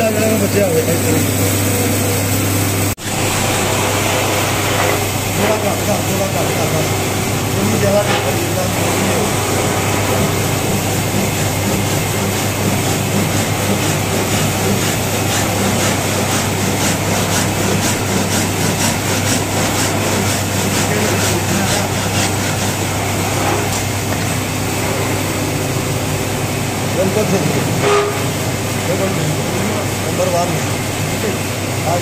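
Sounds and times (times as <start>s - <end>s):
low mechanical hum: 0.0s - 32.0s
handsaw cutting wood: 8.0s - 24.0s.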